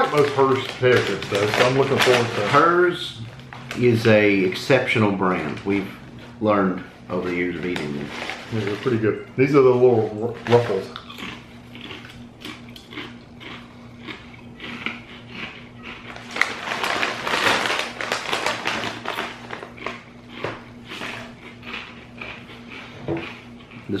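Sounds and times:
foil bag crinkling: 0.0 - 5.9, 7.1 - 11.1, 15.8 - 20.1
chewing potato chips: 0.0 - 6.4, 7.1 - 9.2, 10.0 - 24.0
faint steady hum: 0.0 - 24.0.

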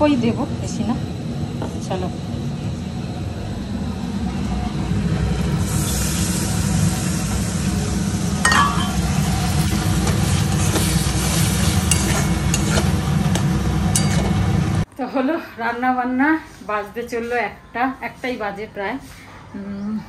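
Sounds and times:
liquid sizzling in hot oil: 5.6 - 14.4
metal spatula clinking on pan: 13.9 - 14.3.

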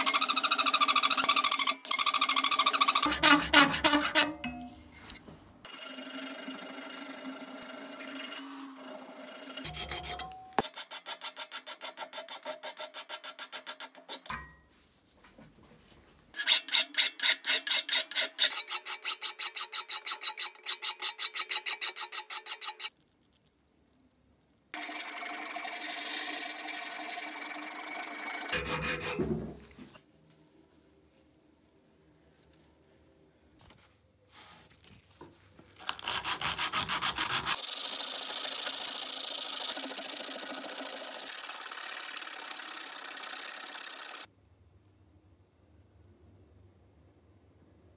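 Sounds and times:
file rasping on steel: 0.0 - 4.4, 9.6 - 14.3, 16.4 - 22.9, 24.8 - 29.4, 35.9 - 37.6.

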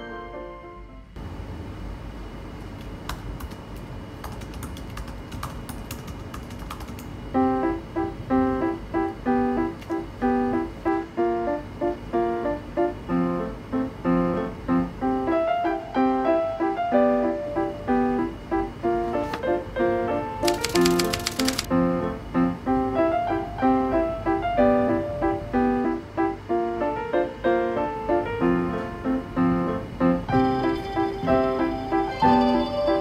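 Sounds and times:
repeating piano-like music: 0.0 - 1.2, 7.4 - 33.0
laptop keyboard typing: 3.1 - 7.2, 20.4 - 21.7.

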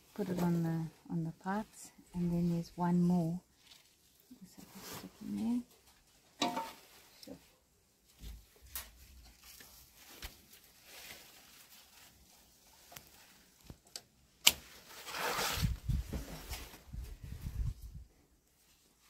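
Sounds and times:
leaves rustling: 2.2 - 13.8, 14.6 - 19.0.

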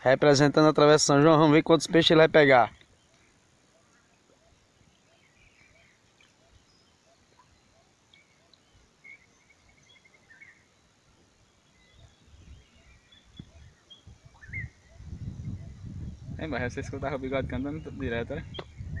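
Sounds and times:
bird chirping and trilling: 11.7 - 19.0.

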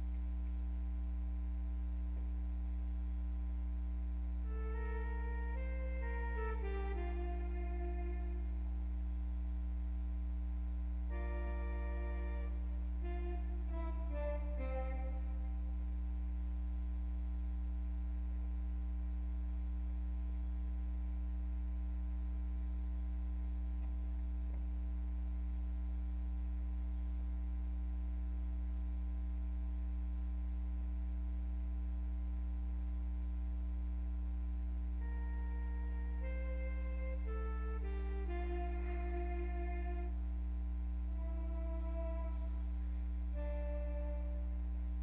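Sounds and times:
steady low drone: 3.6 - 21.4, 33.1 - 45.0
melody notes: 4.5 - 8.5, 11.1 - 15.6, 35.0 - 40.1, 41.1 - 42.6, 43.4 - 44.5.

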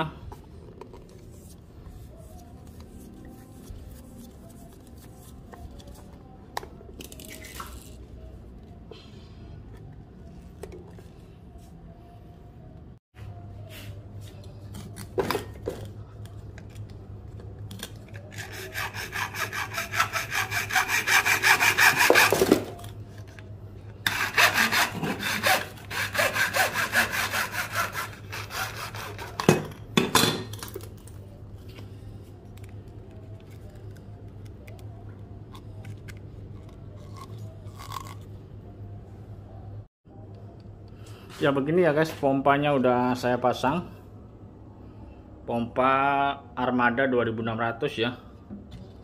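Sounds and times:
hacksaw cutting plastic pipe: 18.2 - 22.8, 24.0 - 29.6.

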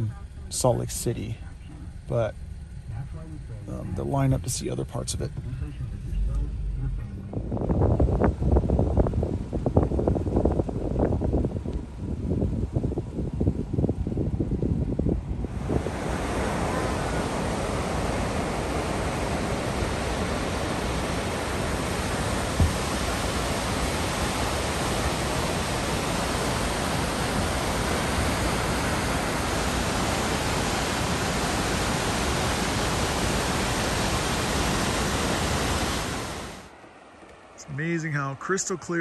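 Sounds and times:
waterfall rushing: 15.6 - 36.7
low thump: 22.6 - 22.9.

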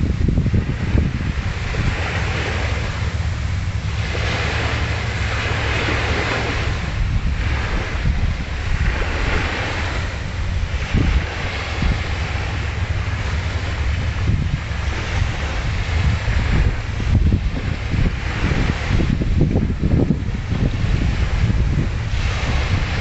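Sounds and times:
small waves washing on sand: 0.0 - 23.0
wind rumbling on microphone: 0.0 - 23.0.

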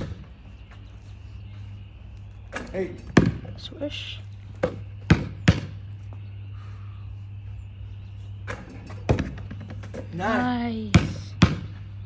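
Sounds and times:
steady low hum: 0.0 - 12.0
basketball bouncing on concrete: 3.1 - 3.5, 4.6 - 5.8, 8.9 - 9.9, 10.8 - 11.8.

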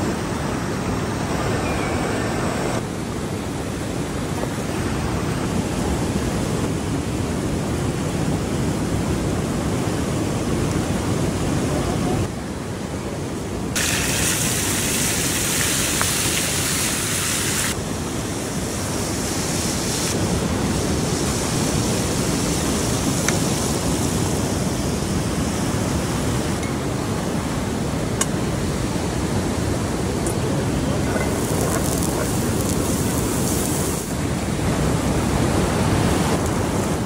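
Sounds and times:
flowing water: 10.6 - 37.0
food sizzling in frying oil: 13.8 - 17.7, 31.3 - 34.1.

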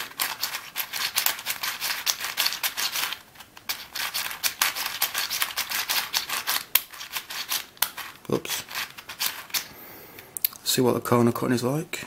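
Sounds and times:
plastic puzzle clicking: 0.0 - 9.7.

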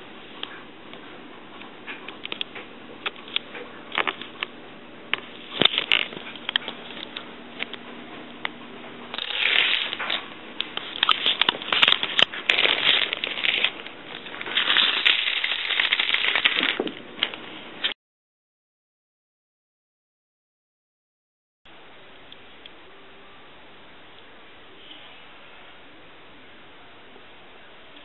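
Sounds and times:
plastic dominoes toppling: 9.1 - 10.2, 10.8 - 16.9.

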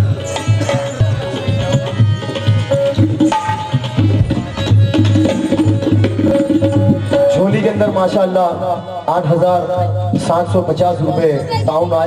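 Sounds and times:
hand drums beating: 0.0 - 8.4
harmonium: 0.0 - 12.0
man's voice: 7.2 - 12.0.

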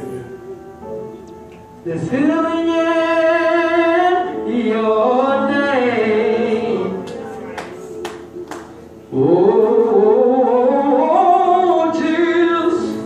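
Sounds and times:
man singing into microphone: 1.8 - 7.5, 9.1 - 13.0.

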